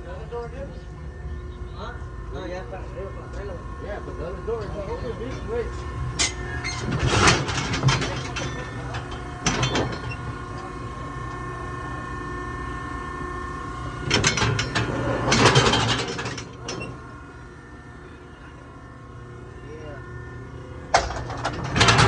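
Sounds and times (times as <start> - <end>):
steel chute rattling and clanging: 6.2 - 10.3, 14.0 - 17.0, 20.9 - 22.0.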